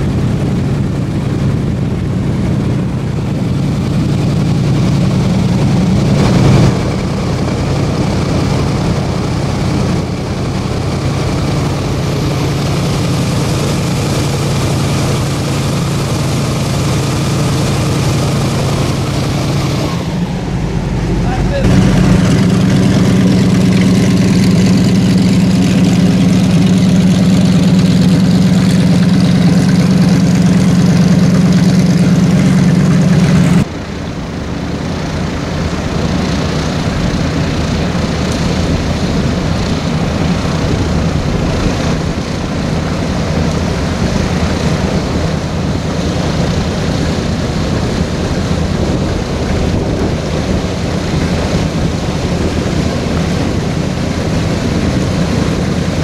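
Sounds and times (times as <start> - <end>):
airboat engine idling: 0.0 - 56.0.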